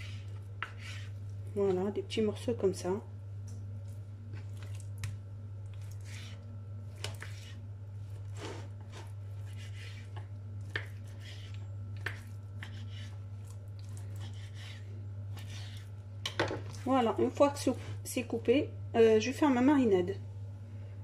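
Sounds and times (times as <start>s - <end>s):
knife slicing raw meat: 8.4s - 15.9s.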